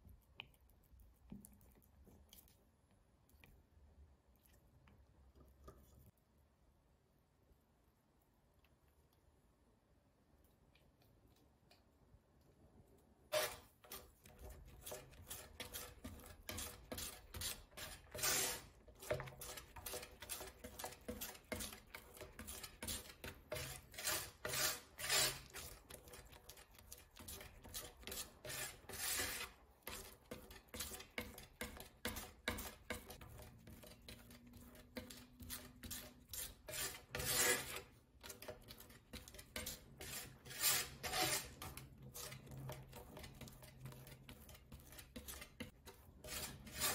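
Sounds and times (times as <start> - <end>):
palette knife scraping on glass: 13.3 - 46.9.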